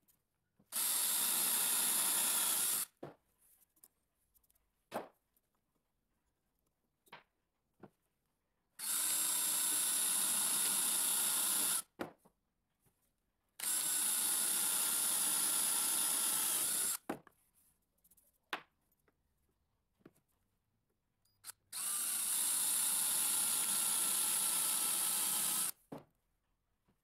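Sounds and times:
cordless drill boring into wood: 0.7 - 2.9, 8.8 - 11.9, 13.6 - 17.0, 21.4 - 25.8.

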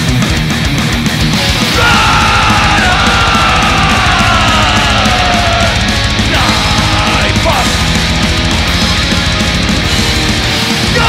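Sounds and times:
heavy metal band playing live: 0.0 - 11.0
vocalist yelling: 1.6 - 7.8, 10.8 - 11.0.

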